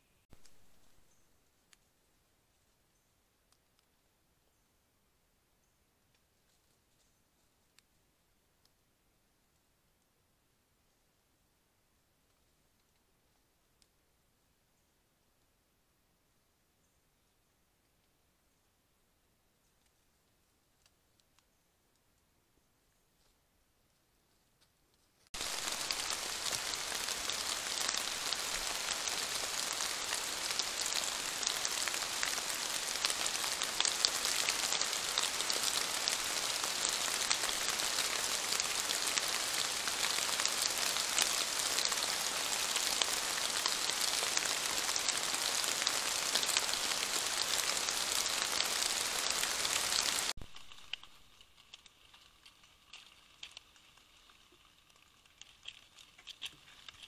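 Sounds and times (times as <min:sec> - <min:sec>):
steady rain falling: 0:25.4 - 0:57.0.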